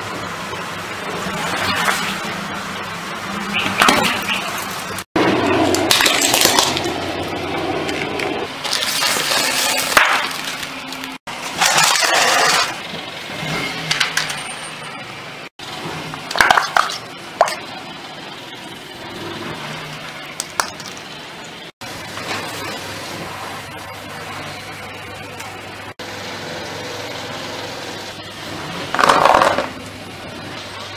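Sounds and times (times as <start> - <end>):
tyre crushing plastic and metal: 5.7 - 7.0, 7.9 - 12.8.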